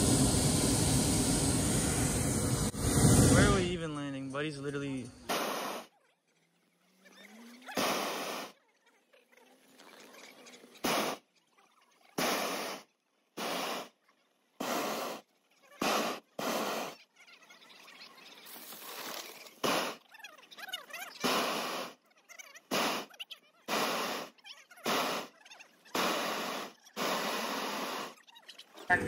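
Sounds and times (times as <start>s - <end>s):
propane burner blasts: 0.0s - 5.9s, 7.8s - 8.5s, 10.8s - 11.2s, 12.2s - 12.8s, 13.4s - 13.9s, 14.6s - 15.2s, 15.8s - 17.0s, 19.6s - 20.0s, 21.2s - 21.9s, 22.7s - 23.1s, 23.7s - 25.3s, 25.9s - 28.2s.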